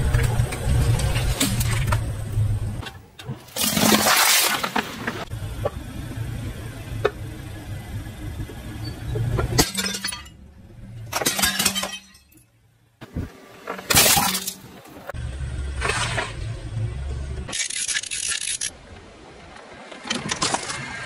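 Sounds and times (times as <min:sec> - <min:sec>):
car low rumble: 0:00.0 - 0:03.6, 0:04.8 - 0:17.6
bowls shattering under tyre: 0:03.5 - 0:05.2, 0:09.6 - 0:10.4, 0:11.1 - 0:12.4, 0:13.9 - 0:14.7.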